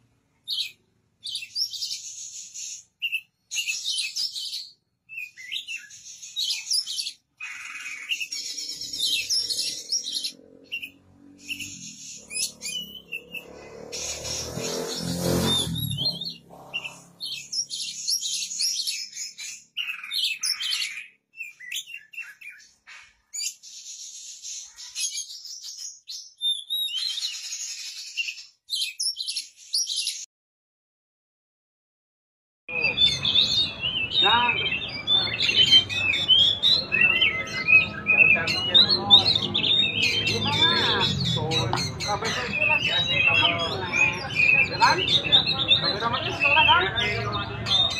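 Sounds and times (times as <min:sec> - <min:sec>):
bird singing whistled notes: 0:00.4 - 0:22.7, 0:23.4 - 0:30.2, 0:32.7 - 0:47.9.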